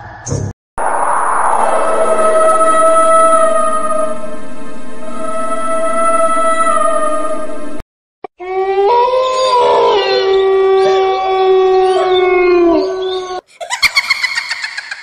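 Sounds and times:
long canine howl: 0:08.4 - 0:13.4.

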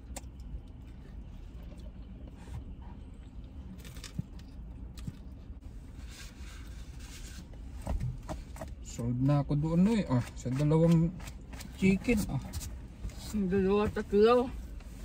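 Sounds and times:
car cabin rumble: 0:07.4 - 0:15.0.

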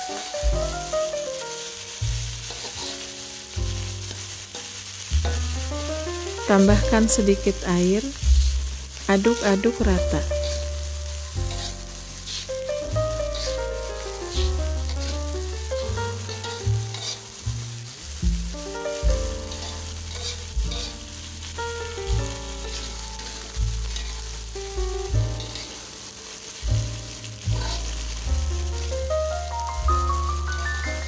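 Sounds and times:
spatula scraping a wok: 0:00.0 - 0:31.0
vegetables sizzling in a wok: 0:00.0 - 0:31.0
background music with bass line: 0:00.4 - 0:01.2, 0:02.0 - 0:26.0, 0:26.6 - 0:31.0.

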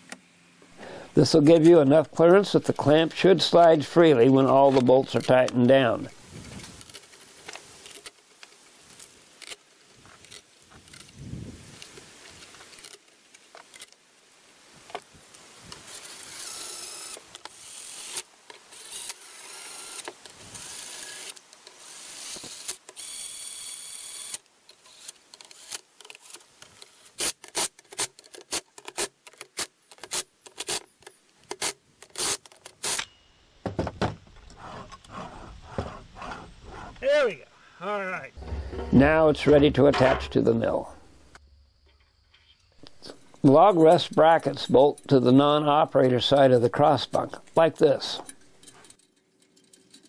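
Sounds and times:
cordless drill driving bolts: 0:15.9 - 0:25.8
metal parts clicking and knocking: 0:48.2 - 0:50.0.

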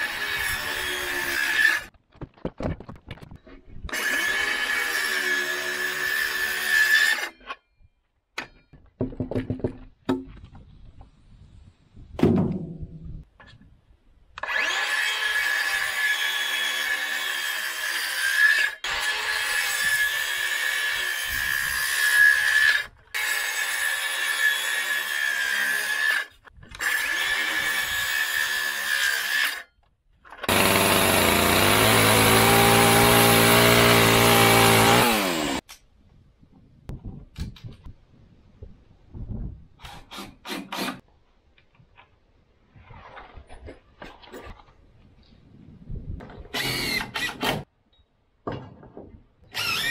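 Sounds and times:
circular saw cutting timber: 0:00.0 - 0:01.9, 0:03.9 - 0:07.5, 0:14.4 - 0:29.7, 0:30.4 - 0:35.7, 0:39.8 - 0:41.0, 0:46.5 - 0:47.7, 0:49.5 - 0:49.9.

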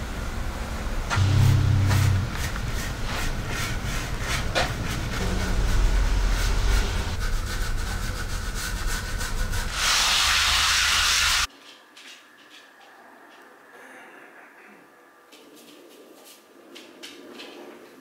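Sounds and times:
low steady rumble: 0:00.0 - 0:09.8
paper towel scrubbing concrete floor: 0:01.2 - 0:11.5.

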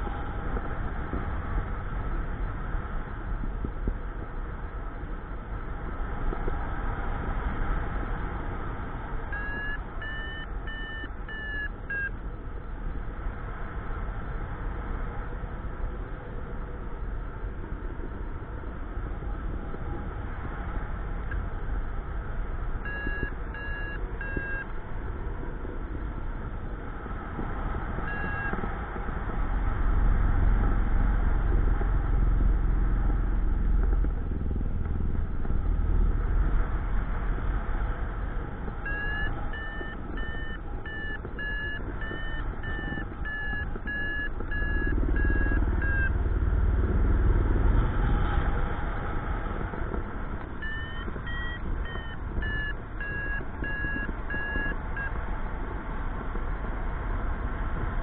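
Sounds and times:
variometer beeping: 0:09.3 - 0:12.4, 0:22.7 - 0:24.9, 0:27.8 - 0:29.1, 0:38.2 - 0:46.7, 0:49.6 - 0:56.4
wind rush on microphone: 0:11.9 - 0:58.0.

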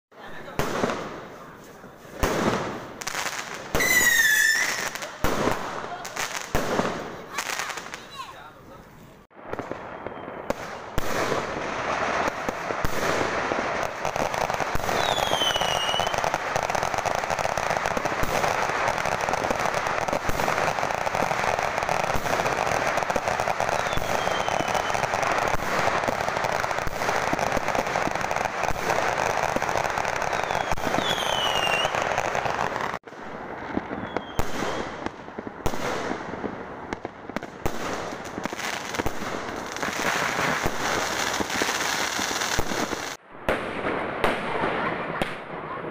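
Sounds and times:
firework bangs: 0:00.1 - 0:45.9
fireworks crackling and popping: 0:00.1 - 0:45.9
falling firework whistles: 0:03.7 - 0:05.0, 0:09.5 - 0:11.5, 0:14.6 - 0:16.8, 0:23.1 - 0:25.8, 0:30.2 - 0:32.2, 0:33.8 - 0:35.0.

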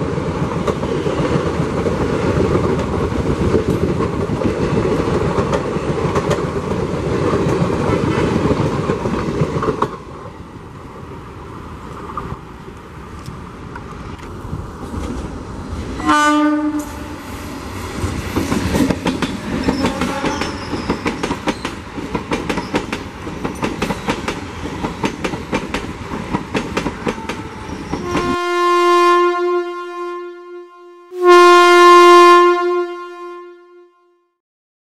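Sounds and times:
train wheels clacking on rails: 0:00.0 - 0:10.1, 0:17.7 - 0:28.4
long horn blasts: 0:16.0 - 0:17.2, 0:19.7 - 0:20.6, 0:27.2 - 0:34.4
train horn: 0:16.0 - 0:17.2, 0:19.6 - 0:20.8, 0:27.0 - 0:34.4.

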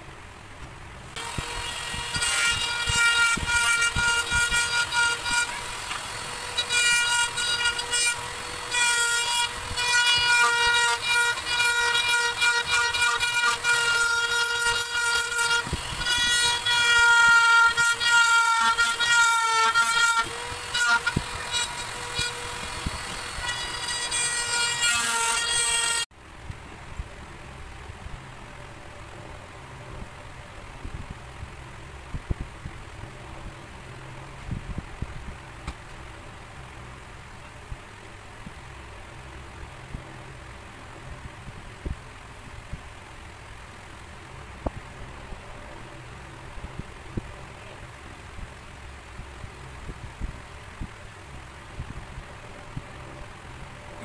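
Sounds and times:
rotary tool grinding plastic: 0:01.1 - 0:26.1.

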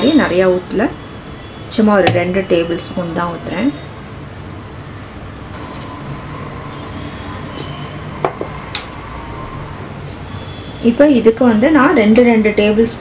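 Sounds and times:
steady low hum: 0:00.6 - 0:03.6.

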